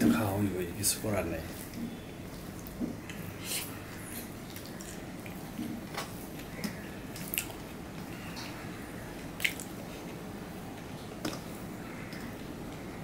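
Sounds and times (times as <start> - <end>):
wet chewing: 1.7 - 10.2.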